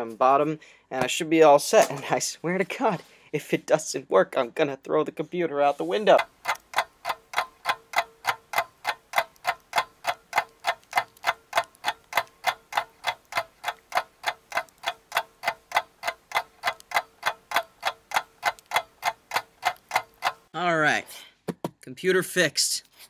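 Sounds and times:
clock ticking: 0:05.9 - 0:20.5.

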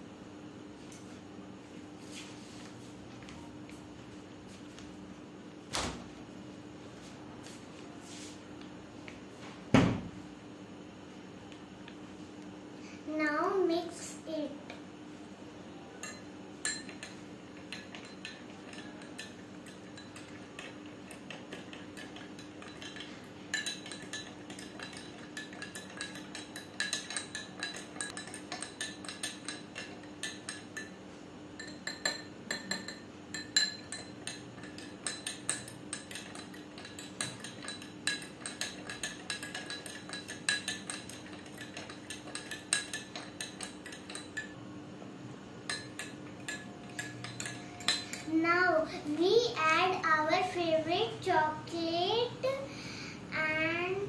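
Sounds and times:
spoon clinking against glass: 0:16.0 - 0:31.0, 0:31.6 - 0:44.6, 0:45.7 - 0:48.3.

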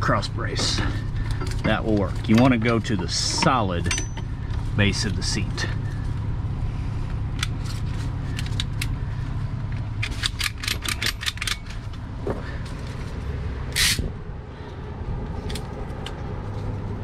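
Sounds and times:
diesel engine idling: 0:00.0 - 0:17.0
ratchet buckle clicking: 0:10.0 - 0:11.8, 0:13.7 - 0:14.1.

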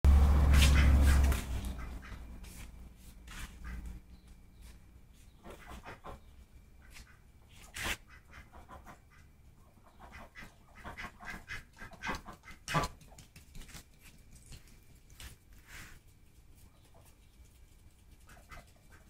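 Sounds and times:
ducks quacking: 0:00.2 - 0:02.3, 0:03.4 - 0:04.0, 0:05.4 - 0:13.0.

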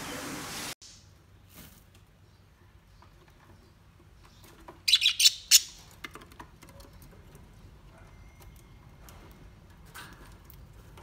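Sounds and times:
budgerigars chirping: 0:04.9 - 0:05.8.

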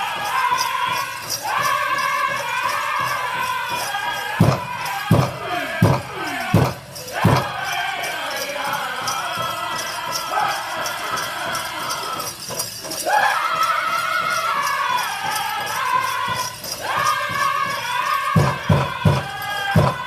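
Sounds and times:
group chanting high: 0:00.0 - 0:20.0
steady drumbeat: 0:00.0 - 0:20.0
loud drum strikes: 0:03.0 - 0:08.1, 0:15.6 - 0:20.0.

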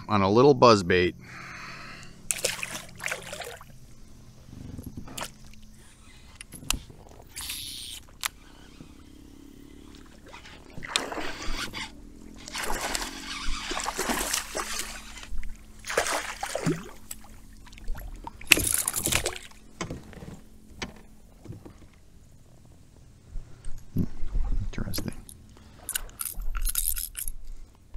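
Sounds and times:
fish thrashing water splashing: 0:02.3 - 0:03.8, 0:12.4 - 0:19.6.

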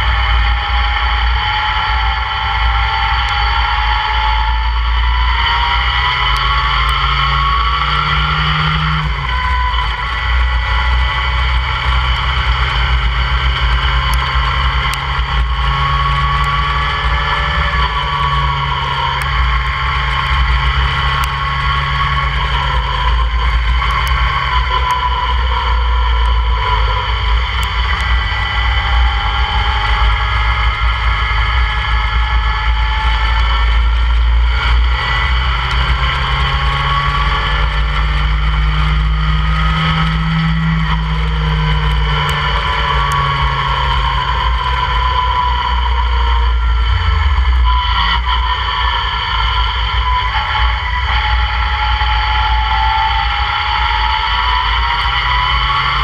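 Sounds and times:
car engine revving: 0:00.0 - 0:56.0.

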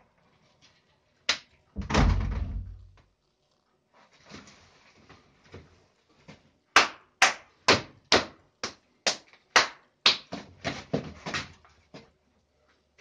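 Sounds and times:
hands slapping and clapping: 0:01.3 - 0:01.6, 0:06.7 - 0:11.0.

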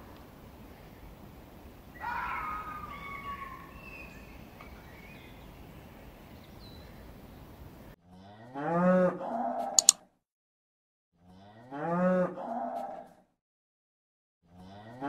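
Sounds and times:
outdoor hiss: 0:00.0 - 0:02.0
high-pitched animal calls: 0:02.0 - 0:04.4
cow mooing: 0:08.1 - 0:09.7, 0:11.2 - 0:13.1, 0:14.6 - 0:15.0.

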